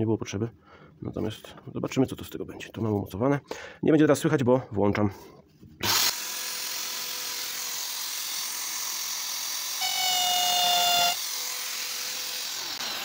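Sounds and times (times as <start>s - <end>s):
electric drill whining: 5.8s - 13.0s
drill bit squealing on steel: 9.8s - 12.1s.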